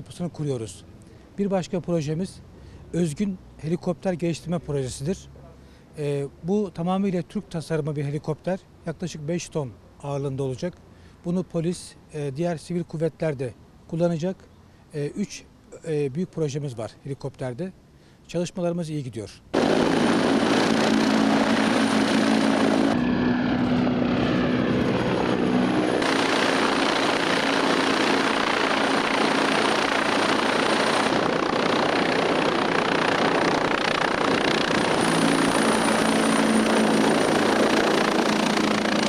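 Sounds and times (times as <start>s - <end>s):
helicopter rotor and turbines: 19.6s - 39.0s.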